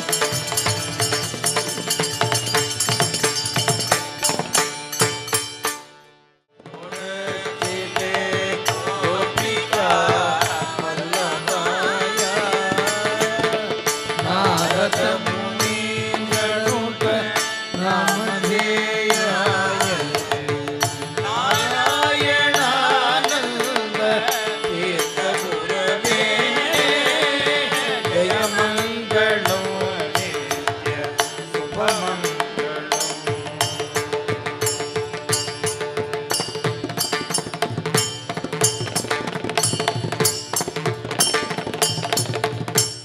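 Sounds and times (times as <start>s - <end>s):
percussion keeping time: 0.0s - 5.9s, 6.6s - 43.0s
wavering vocal melody: 6.7s - 35.0s.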